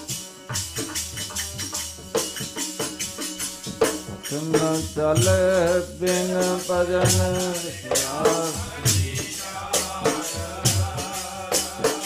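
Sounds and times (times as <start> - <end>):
sharp percussion strokes: 0.0 - 12.0
person singing devotional song: 4.3 - 12.0.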